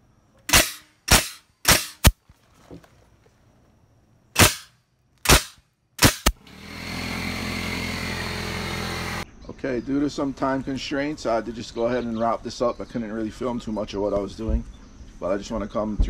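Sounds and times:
nail gun shots into wood: 0.5s - 2.2s, 4.4s - 6.4s.

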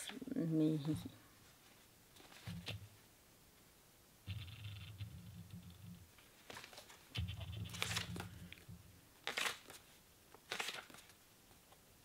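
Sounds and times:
book pages rustling: 1.6s - 2.8s, 6.2s - 8.6s, 9.2s - 11.8s.

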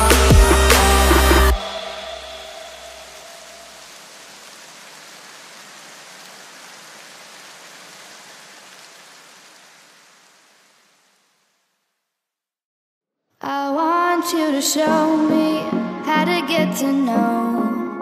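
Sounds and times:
rain-like hiss: 1.5s - 12.1s.

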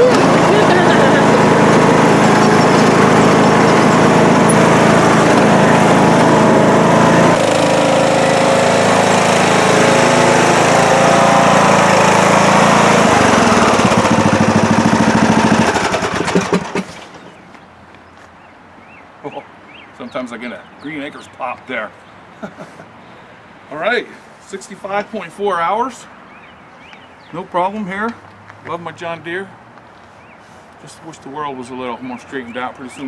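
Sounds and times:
lawn tractor engine running: 0.0s - 17.4s
engine pops: 13.8s - 17.5s.

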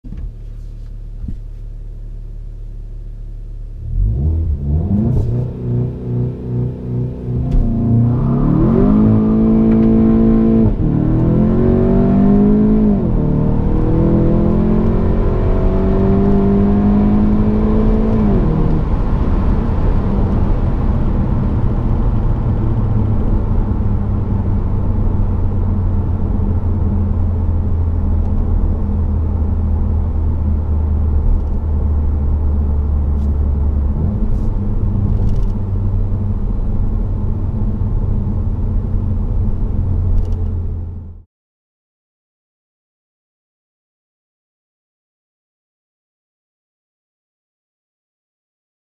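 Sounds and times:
road and tyre noise: 0.0s - 2.8s, 3.5s - 41.2s
car engine accelerating hard: 3.8s - 41.2s.

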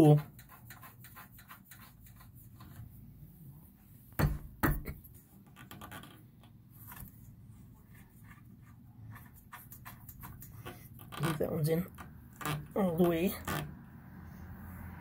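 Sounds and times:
sharp knocks: 4.2s - 5.0s.

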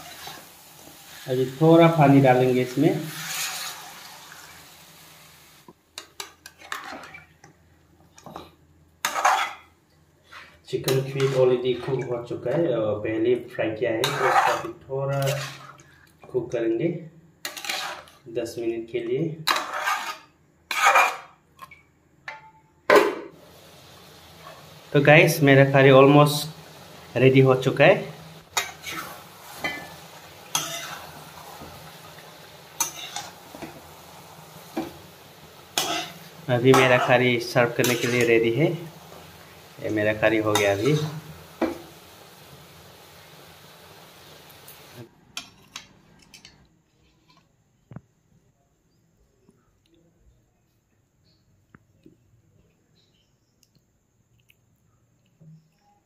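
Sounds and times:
spatula scraping pan: 0.0s - 1.3s, 2.2s - 4.5s, 6.0s - 7.4s, 9.0s - 12.1s, 14.0s - 15.8s, 17.4s - 18.2s, 19.4s - 21.4s, 28.4s - 33.9s, 34.6s - 39.5s, 40.1s - 42.0s
water hissing in hot pan: 0.0s - 5.8s, 23.4s - 45.1s.

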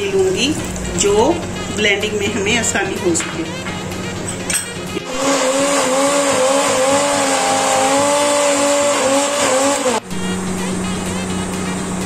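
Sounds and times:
blender motor whining: 4.9s - 10.6s.

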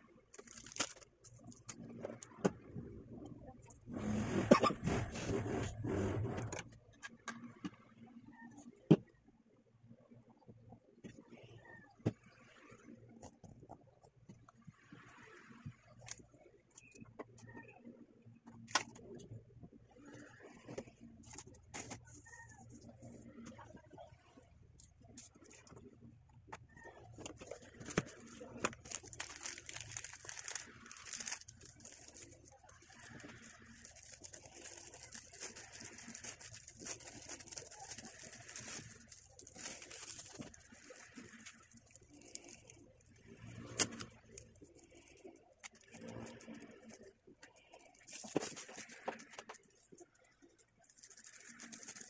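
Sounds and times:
plastic film crinkling: 0.3s - 2.0s, 27.0s - 52.0s.

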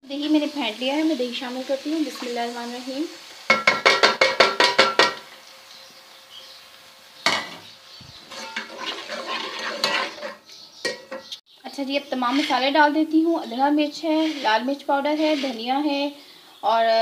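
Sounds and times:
metal spoon tapping metal pot: 3.5s - 5.2s
stirring in pan: 8.1s - 11.2s, 12.0s - 12.8s, 13.4s - 15.9s
metal clank: 8.3s - 11.4s.

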